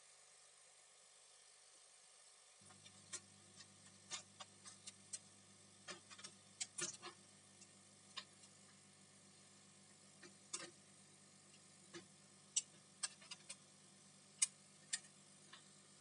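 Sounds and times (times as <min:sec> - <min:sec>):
low steady hum: 0:00.0 - 0:16.0
small clicks and taps of parts: 0:02.7 - 0:08.5, 0:10.2 - 0:10.8, 0:11.5 - 0:13.6, 0:14.4 - 0:15.7.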